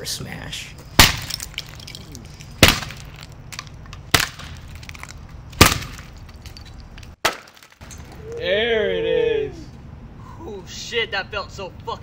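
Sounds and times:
guitar smashing on concrete: 1.0s - 7.9s.

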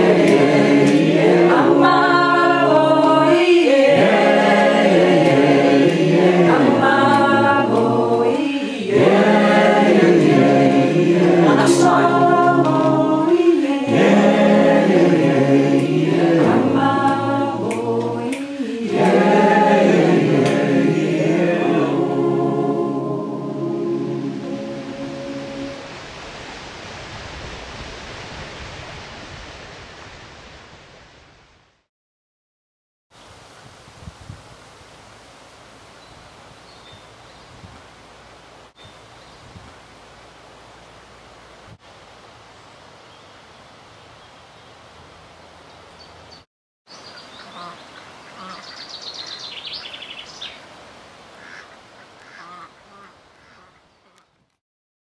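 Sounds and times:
steady outdoor hiss: 0.0s - 31.7s, 33.1s - 54.6s
small birds singing: 45.6s - 50.7s
ducks quacking: 47.4s - 48.8s, 51.4s - 54.3s.

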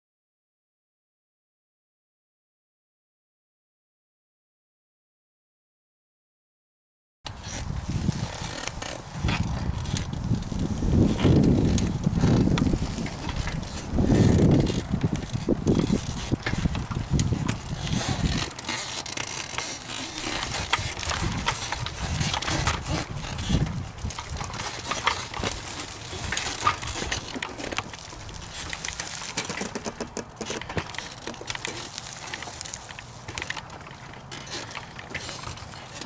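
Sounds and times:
wind buffeting microphone: 7.3s - 18.6s, 20.2s - 29.2s
tyres crunching over dirt: 7.3s - 36.0s.

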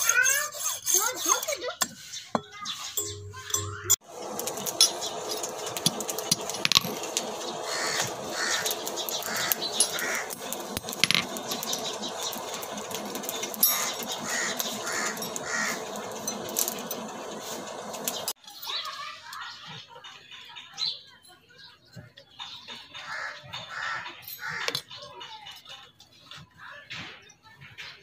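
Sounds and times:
outdoor background noise: 0.0s - 28.0s
crows cawing: 7.6s - 10.4s, 13.7s - 15.8s, 23.0s - 24.8s.

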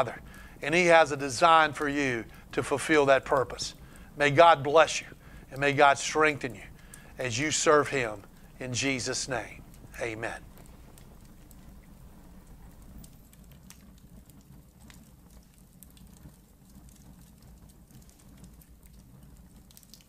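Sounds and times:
low hum: 0.0s - 13.3s.

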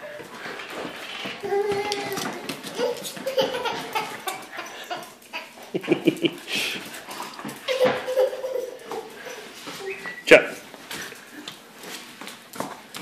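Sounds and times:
clicks and knocks on tile floor: 0.1s - 5.3s, 6.0s - 9.8s, 12.2s - 13.0s
toddler giggling and squealing: 1.4s - 5.7s, 7.6s - 10.1s.

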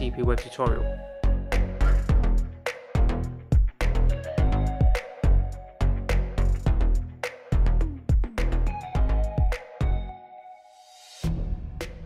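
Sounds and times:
music with strong bass drum: 1.5s - 5.5s, 6.1s - 10.0s.

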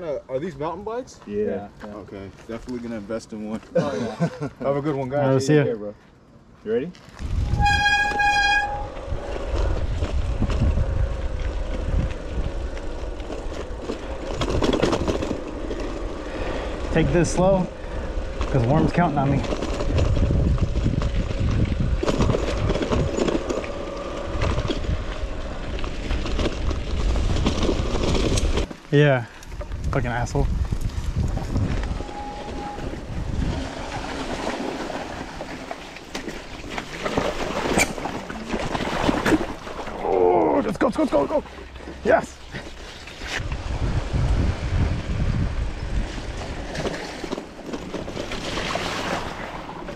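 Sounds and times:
bike rattling over bumps: 7.0s - 40.0s, 41.0s - 49.9s
bike tyre noise: 7.0s - 49.9s
wind buffeting microphone: 7.2s - 28.7s, 29.4s - 35.6s, 43.3s - 47.1s
tyres rattling over stones: 18.4s - 29.2s
held pitched tone: 31.8s - 33.1s
bike tyres splashing through water: 43.8s - 49.9s.

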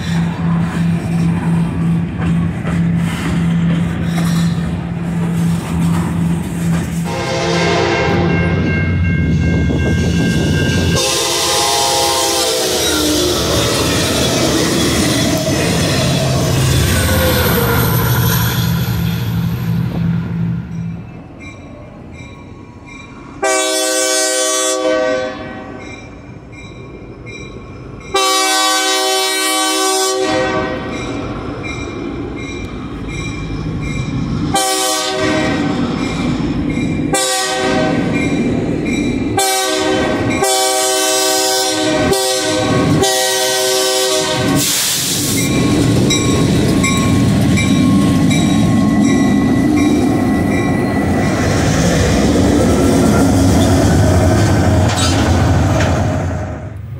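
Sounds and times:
wheels on rails: 0.0s - 7.1s
locomotive air horn blasts: 7.0s - 8.6s, 10.9s - 13.5s, 23.4s - 25.8s, 28.2s - 30.9s, 34.5s - 35.8s, 37.1s - 38.1s, 39.4s - 44.8s.

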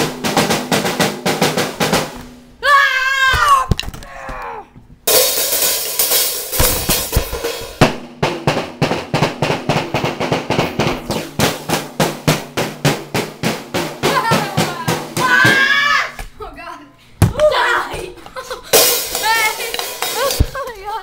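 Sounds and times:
crashing cymbals and drums: 0.0s - 2.6s, 5.1s - 15.9s, 18.7s - 20.6s
rapid snare and drum hits: 0.0s - 2.6s, 5.1s - 16.0s, 18.7s - 20.7s.

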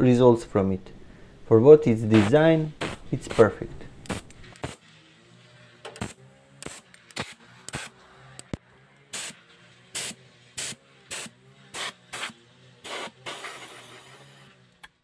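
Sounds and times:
compressed air hissing from nozzle: 2.1s - 4.9s, 5.9s - 8.0s, 9.1s - 14.5s.

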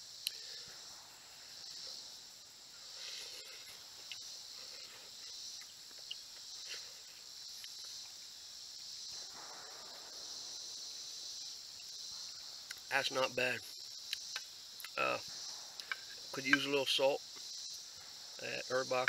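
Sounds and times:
high chorus of insects: 0.0s - 19.0s.

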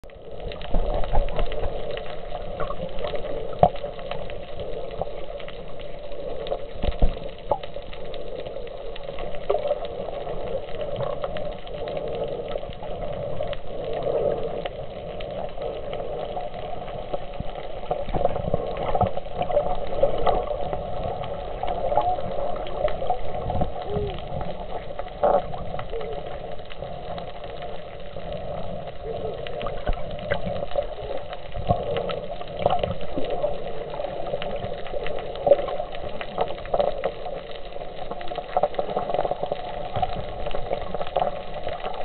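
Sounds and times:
muffled underwater wash and bubbling: 0.0s - 42.0s.

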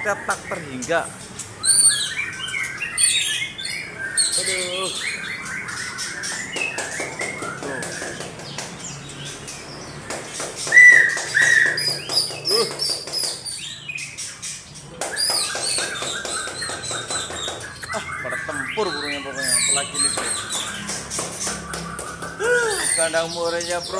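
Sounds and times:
birds singing and calling: 0.0s - 23.9s
loud clear bird whistles: 10.7s - 13.0s.

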